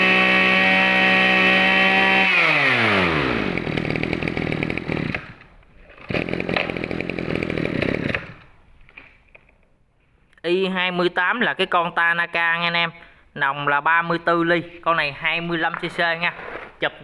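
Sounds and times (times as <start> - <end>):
brush cutter engine winding down: 0.0 - 8.5.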